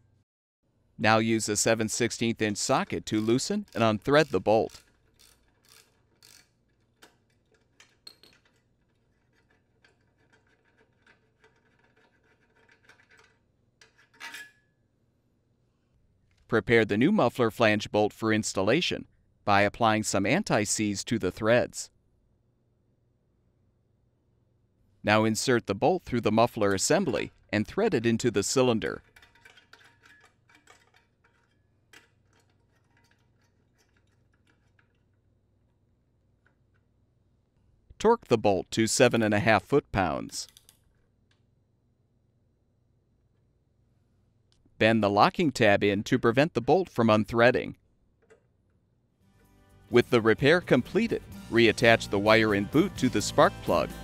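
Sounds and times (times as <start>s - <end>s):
metal clicks and scrapes: 2.4s - 14.6s, 26.7s - 35.8s
metallic clink: 7.0s - 8.7s.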